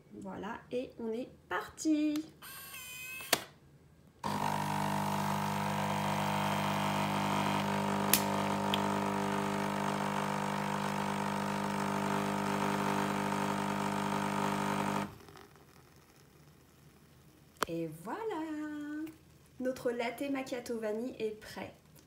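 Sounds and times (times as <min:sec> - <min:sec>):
coffee machine pump humming: 0:04.2 - 0:15.7.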